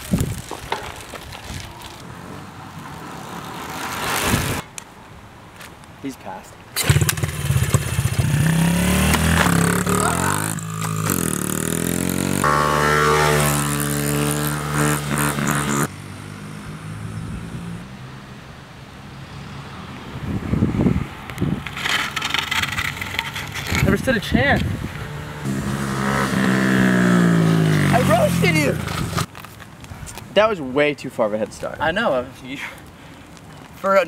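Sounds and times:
outdoor noise: 0.0s - 34.0s
dirt bike engine accelerating: 6.8s - 17.8s, 21.8s - 29.3s.

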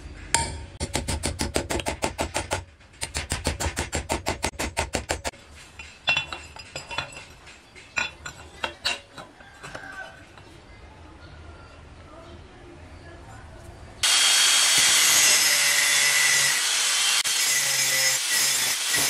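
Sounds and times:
metal clinks: 5.6s - 10.5s.

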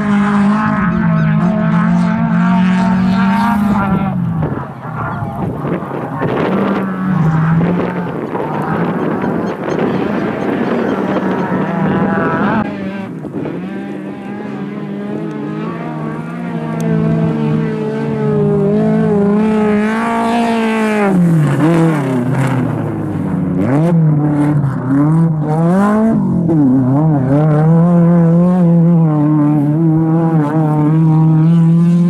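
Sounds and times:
rally car engine revving: 0.0s - 32.0s.

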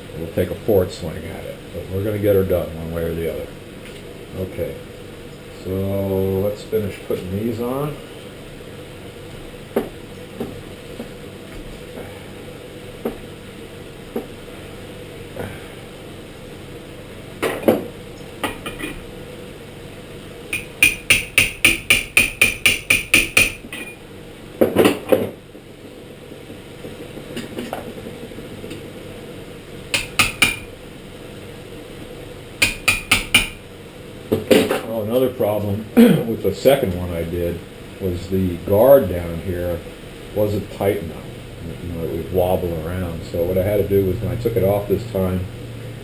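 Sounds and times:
small hammer tapping metal tube: 20.5s - 23.9s, 29.9s - 30.7s, 32.6s - 33.6s.

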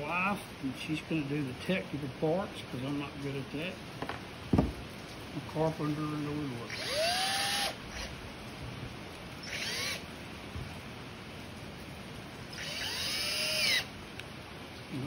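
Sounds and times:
cordless drill driving screw into wood: 6.7s - 8.1s, 9.4s - 10.0s, 12.5s - 13.9s.

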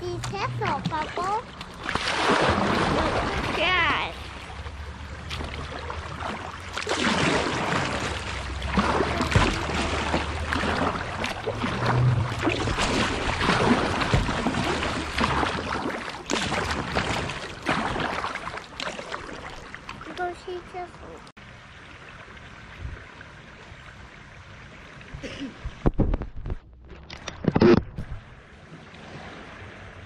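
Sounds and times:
paddle splashing in water: 0.2s - 20.5s
river water rushing: 1.8s - 16.0s.

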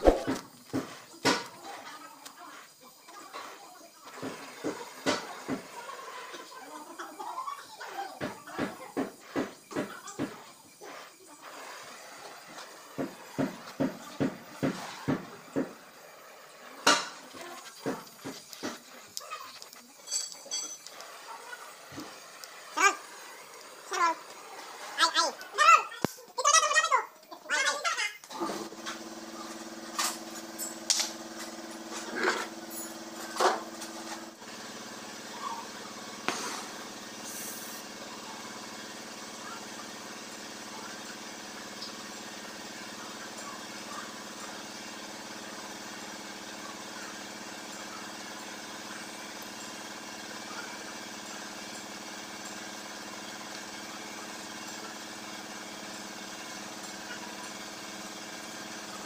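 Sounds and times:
gas torch hissing: 0.0s - 7.2s, 7.8s - 26.3s, 28.2s - 59.0s.

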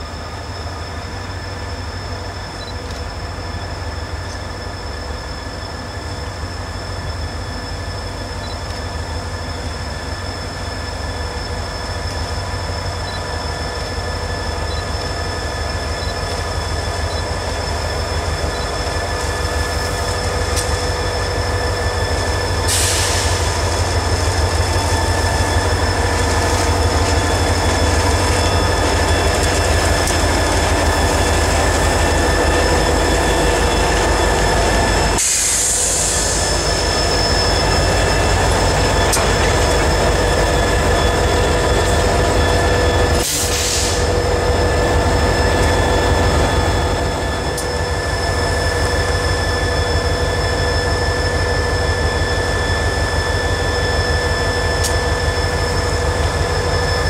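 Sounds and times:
diesel locomotive engines rumbling: 0.0s - 57.0s
wheels squealing on rails: 0.0s - 57.0s
short air hisses: 22.6s - 23.8s, 43.2s - 44.1s.

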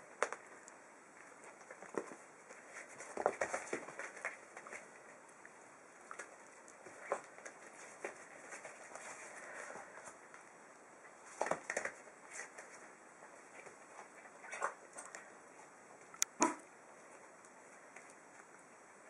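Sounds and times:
puppy paws scrabbling on paper: 1.2s - 5.4s, 6.0s - 10.4s, 11.1s - 15.3s.

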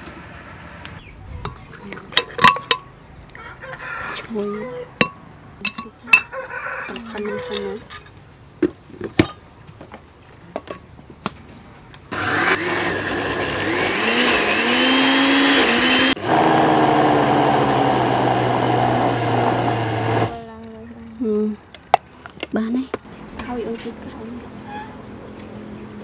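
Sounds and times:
electric blender grinding: 12.1s - 20.4s.

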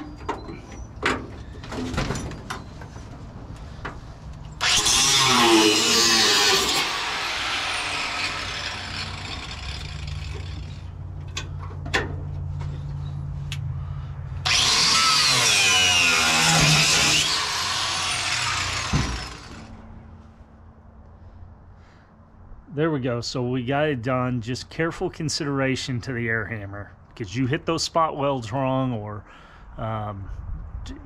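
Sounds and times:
cutoff wheel grinding steel: 0.0s - 11.6s, 14.4s - 19.9s
sharp knocks: 18.8s - 19.4s.

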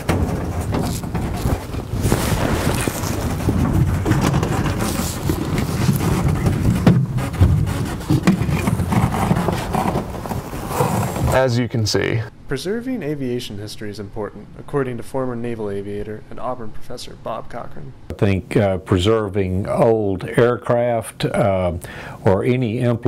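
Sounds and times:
knocks and scrapes: 0.0s - 11.6s
low rumbling noise: 0.0s - 11.8s.

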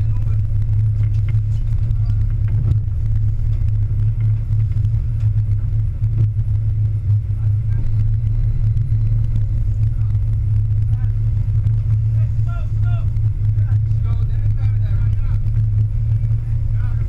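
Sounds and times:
boat engines humming: 0.0s - 17.0s.

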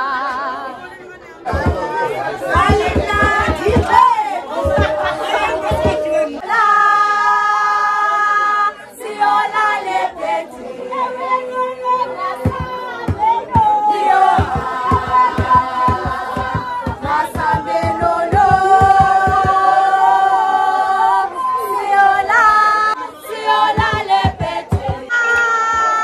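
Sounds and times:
group singing in chorus: 0.0s - 0.8s, 1.5s - 25.6s
drum beaten with a stick: 1.5s - 6.1s, 12.4s - 19.7s, 23.7s - 25.1s.

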